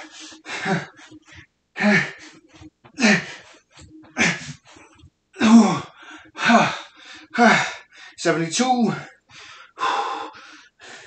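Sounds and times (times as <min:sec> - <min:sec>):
man grunting breaths: 0:00.0 - 0:02.4, 0:03.0 - 0:03.5, 0:05.4 - 0:08.1.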